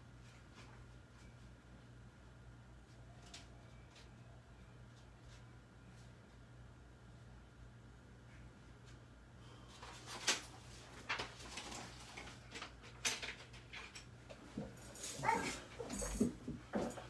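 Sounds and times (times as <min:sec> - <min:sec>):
dog whimpering: 0:15.2 - 0:16.0.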